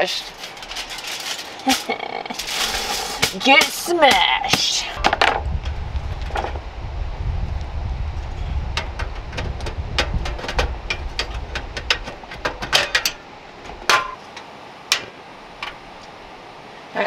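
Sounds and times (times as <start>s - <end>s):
low rumble: 5.0s - 14.2s
metal clicks and clacks: 8.8s - 15.8s.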